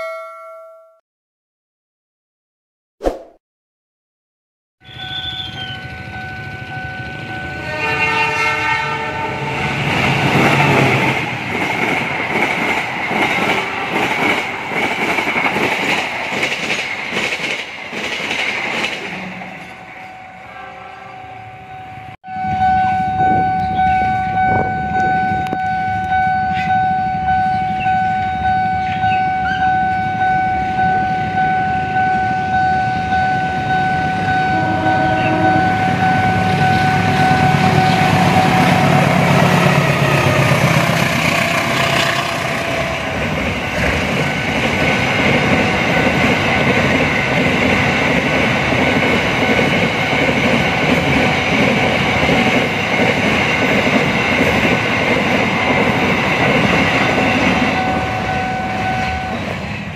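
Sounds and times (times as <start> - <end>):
level crossing bell ringing: 0.0 - 1.0, 21.2 - 38.6
freight train rumble and rail clatter: 5.3 - 59.9.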